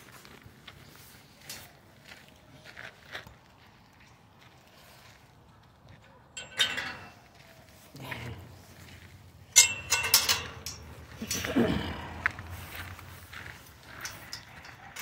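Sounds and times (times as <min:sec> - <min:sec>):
metallic clinks and rattles: 0:06.4 - 0:15.0.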